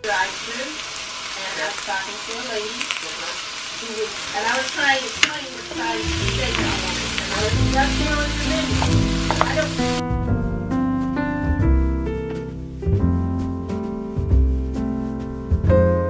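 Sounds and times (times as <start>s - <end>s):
vegetables sizzling in a frying pan: 0.0s - 10.0s
background music: 5.2s - 16.0s.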